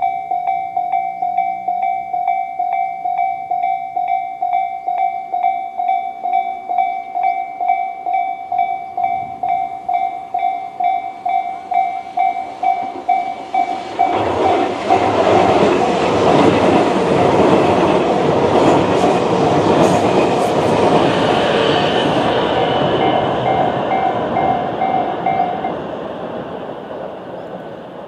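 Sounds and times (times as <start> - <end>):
level crossing bell ringing: 0.0 - 14.2, 22.7 - 25.7
train passing noise: 0.0 - 28.0.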